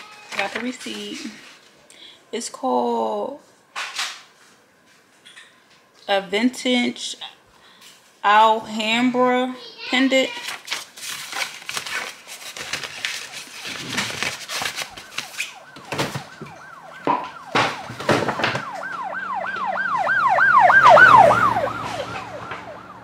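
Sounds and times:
siren sweeping up and down: 14.8 - 23.0.

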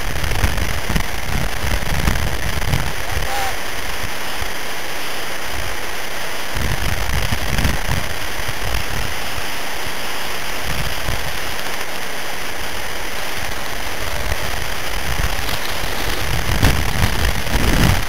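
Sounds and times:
wind on microphone: 0.0 - 18.0
low buffeting rumbles: 12.7 - 18.0.

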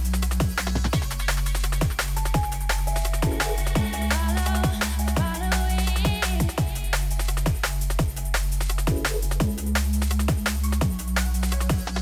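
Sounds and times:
electronic music with fast drum beat: 0.0 - 12.0.

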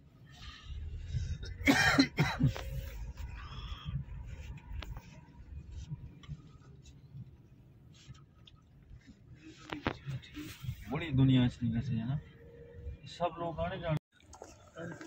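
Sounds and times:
person coughing: 1.4 - 2.6.

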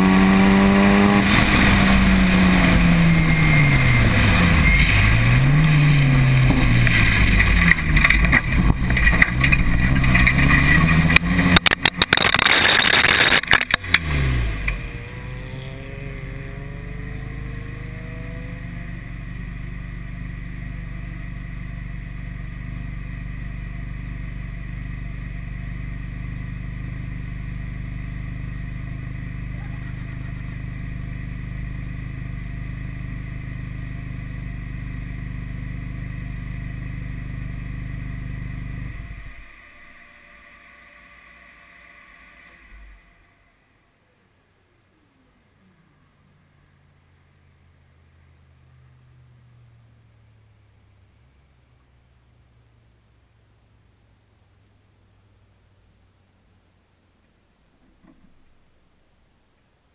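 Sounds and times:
car engine revving: 0.0 - 43.8
car engine idling: 0.0 - 59.9.

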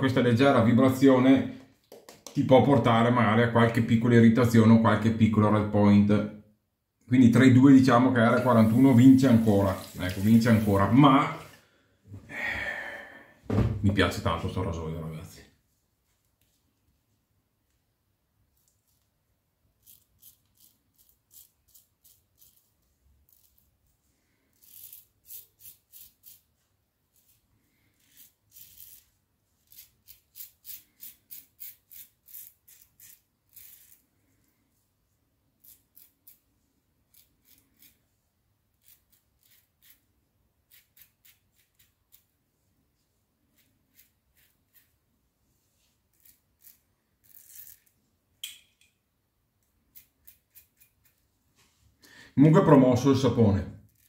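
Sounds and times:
razor scraping beard stubble: 19.8 - 23.8, 24.5 - 34.1, 35.6 - 36.5, 37.1 - 38.1, 38.7 - 42.4, 43.5 - 45.0, 46.0 - 48.0, 49.6 - 51.2.

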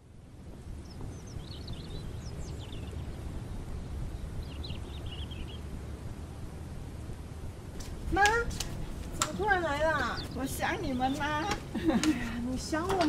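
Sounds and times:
small birds chirping: 0.8 - 5.7, 7.8 - 13.0.

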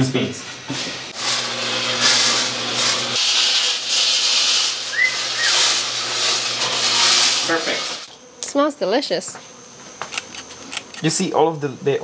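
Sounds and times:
coffee beans hissing and rattling: 0.8 - 8.1, 10.1 - 11.4
short rising chirp: 4.9 - 5.8.

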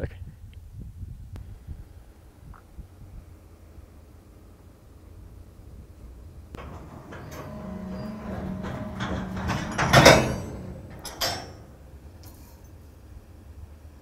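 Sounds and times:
loud crash of freight cars: 6.6 - 12.0
freight car couplers clanking: 6.6 - 12.4.

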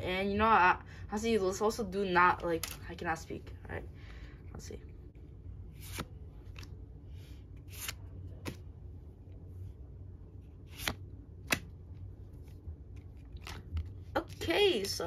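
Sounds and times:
faint room hum: 0.0 - 15.0
trading cards swishing: 5.7 - 8.7, 10.5 - 14.0.

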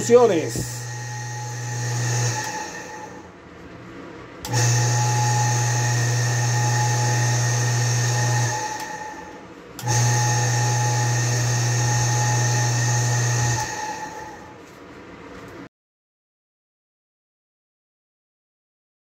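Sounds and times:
water pump motor humming and whining: 0.0 - 3.4, 4.4 - 14.8.

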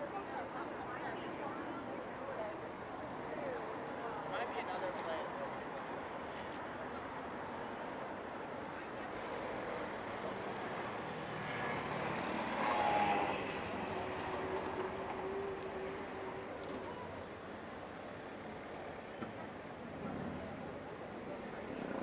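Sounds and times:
road traffic noise: 0.0 - 22.0
vehicle passing close by: 11.4 - 14.8.

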